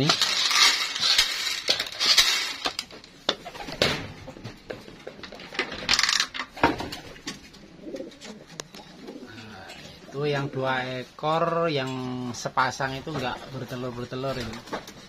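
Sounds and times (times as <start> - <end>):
rustling and scraping: 0.0 - 15.0
pigeons cooing: 6.7 - 10.5.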